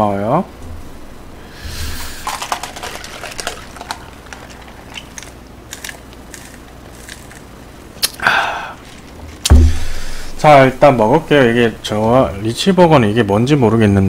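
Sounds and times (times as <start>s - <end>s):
short breathy burst: 1.4s - 2.2s, 9.5s - 10.4s
paper cup crackling: 1.7s - 10.8s.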